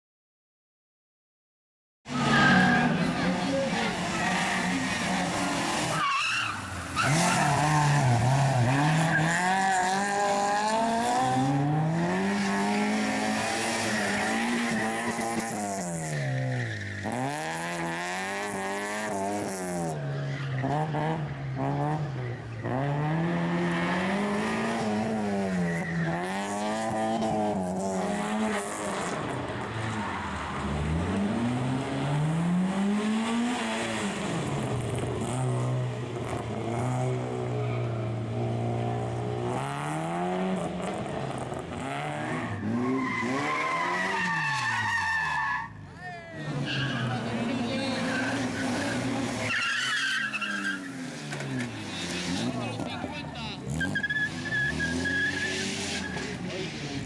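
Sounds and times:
car engines revving hard: 0:02.1 - 0:57.0
tyres squealing: 0:03.8 - 0:09.6, 0:42.1 - 0:56.4.

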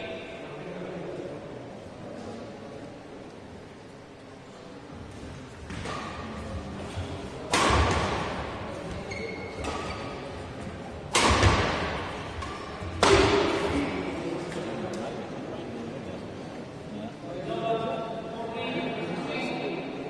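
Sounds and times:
echo in hall: 0:00.0 - 0:20.0
racket striking shuttlecock: 0:07.4 - 0:09.0, 0:11.1 - 0:13.6.

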